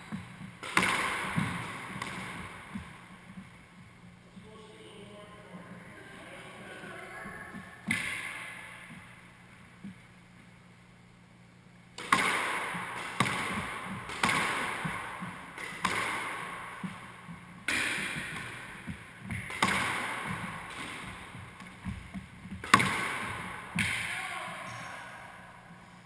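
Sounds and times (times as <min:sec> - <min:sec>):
squash ball hits echoing: 0:00.0 - 0:03.6, 0:07.2 - 0:09.2, 0:12.0 - 0:25.8.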